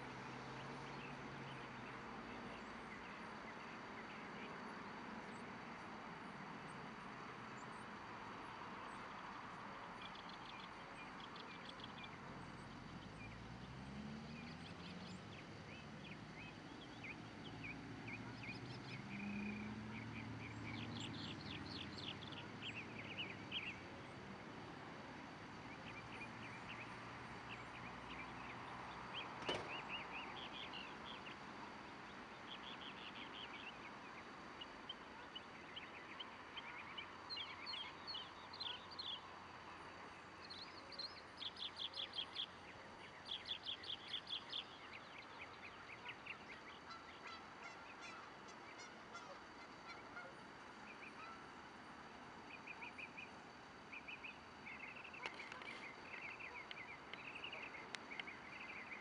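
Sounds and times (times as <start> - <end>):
songbirds chirping: 0.0 - 59.0
passing vehicle rumble: 11.8 - 34.7.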